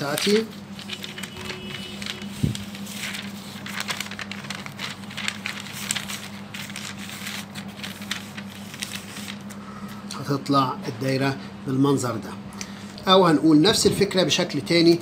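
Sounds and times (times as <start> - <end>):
paper rustling and sliding: 0.0 - 9.6
steady low hum: 0.0 - 15.0.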